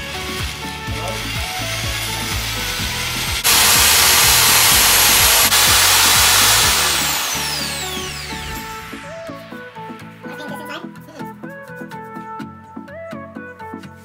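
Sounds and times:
electric drill mixing paint: 0.0s - 10.0s.

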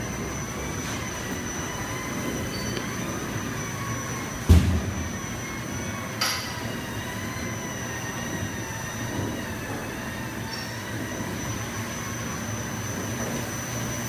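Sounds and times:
factory machinery drone: 0.0s - 14.0s
high whining tones: 0.0s - 14.0s
loud knock: 4.5s - 5.2s.

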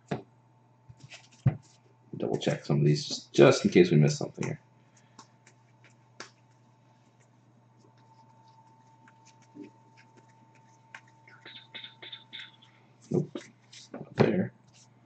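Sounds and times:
low steady hum: 0.0s - 15.0s
trading cards flicked by hand: 4.4s - 6.5s.

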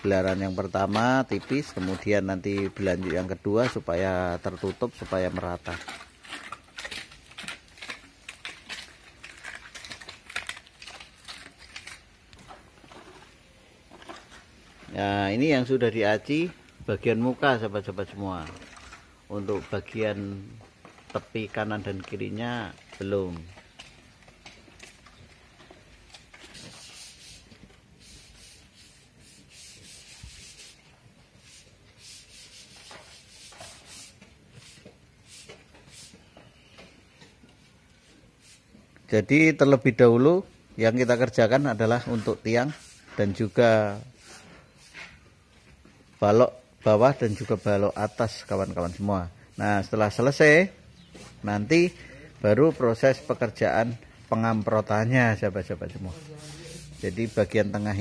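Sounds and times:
trowel scraping wet cement: 0.0s - 12.1s, 31.4s - 36.1s, 40.8s - 45.2s, 46.8s - 50.6s, 55.7s - 58.0s.

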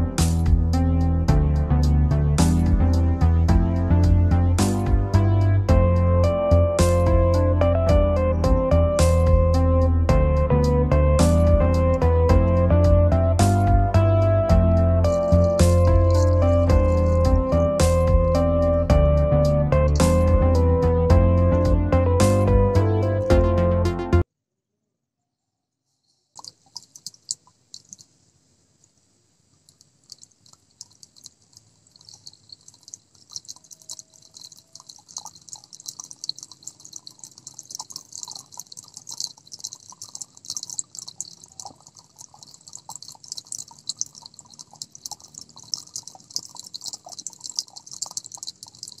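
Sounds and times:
water trickling and splashing: 2.4s - 9.6s, 10.2s - 21.0s, 26.4s - 49.0s.

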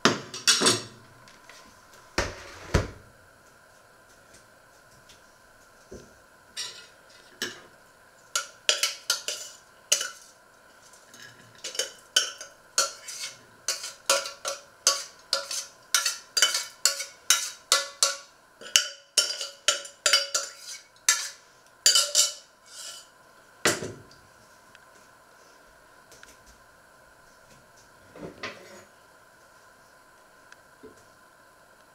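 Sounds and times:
metal spoon scraping a saucepan: 8.4s - 10.3s, 11.1s - 23.1s.

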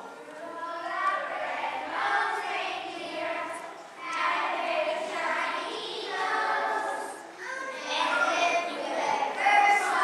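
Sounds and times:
children singing: 0.0s - 10.0s.

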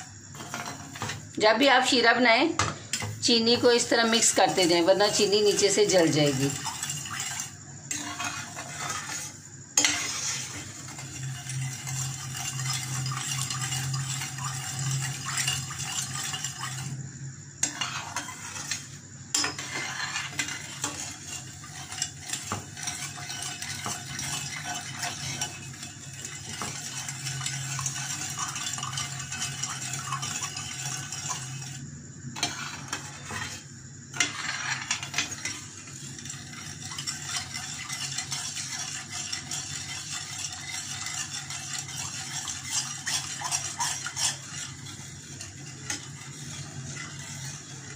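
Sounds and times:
metal spoon scraping steel pan: 0.0s - 2.0s, 2.9s - 17.0s, 17.6s - 47.9s.

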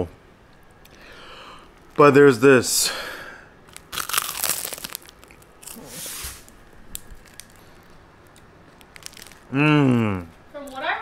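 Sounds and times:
plastic wrapper crinkling: 3.6s - 9.6s.

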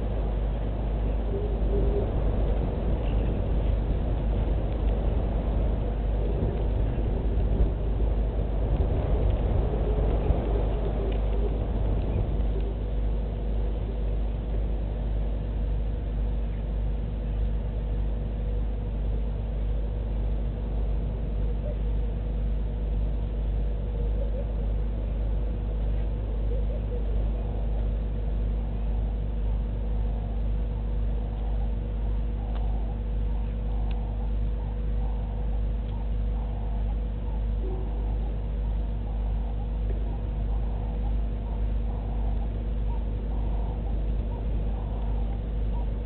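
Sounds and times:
constant hum: 0.0s - 46.0s
steady low rumble: 0.0s - 46.0s.

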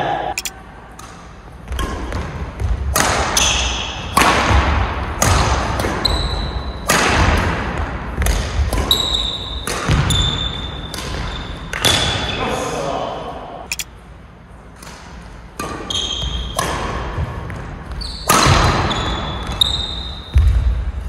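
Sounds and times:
rackets hitting shuttlecock: 0.3s - 7.6s, 8.2s - 12.1s, 14.8s - 17.6s
shoes squeaking on court floor: 17.9s - 20.4s.

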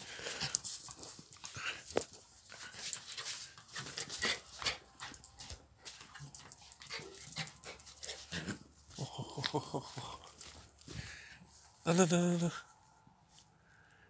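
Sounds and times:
small dog whimpering and panting: 3.8s - 8.6s.

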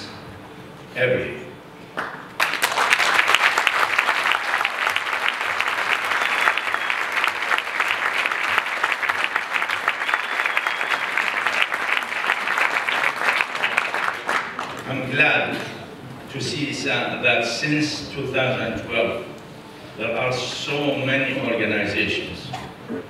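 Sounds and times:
audience applauding: 2.0s - 15.0s.

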